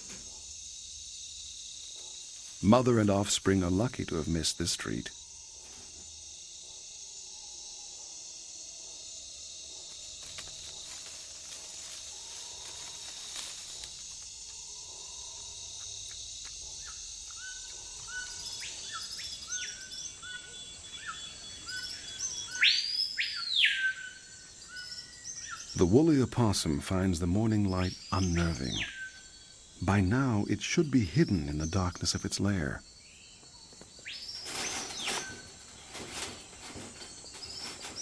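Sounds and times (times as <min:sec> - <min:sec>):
insects trilling: 0:00.0 - 0:38.0.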